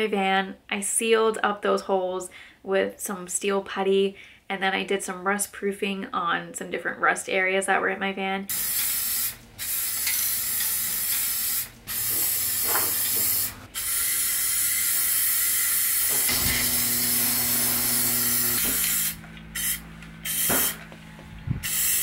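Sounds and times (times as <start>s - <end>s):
aerosol can spraying: 8.5s - 20.8s, 21.6s - 22.0s.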